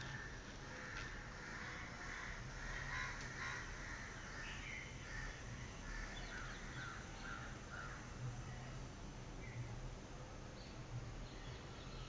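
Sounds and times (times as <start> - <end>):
birds calling: 0.0 - 8.1.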